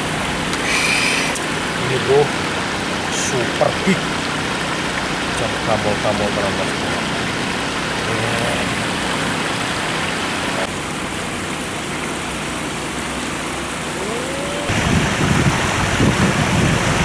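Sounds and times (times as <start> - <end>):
river water rushing: 0.0 - 17.0
wind buffeting microphone: 14.4 - 17.0.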